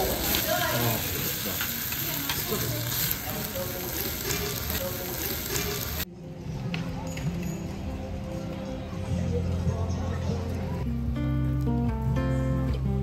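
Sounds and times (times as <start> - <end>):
sizzling in hot stone bowl: 0.0 - 6.1.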